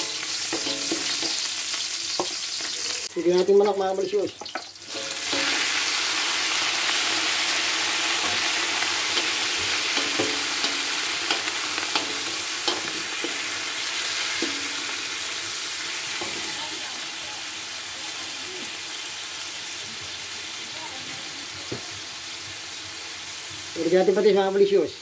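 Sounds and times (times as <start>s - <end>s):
chicken sizzling in hot oil: 0.0s - 25.0s
wooden spoon knocking on wok: 9.1s - 13.4s.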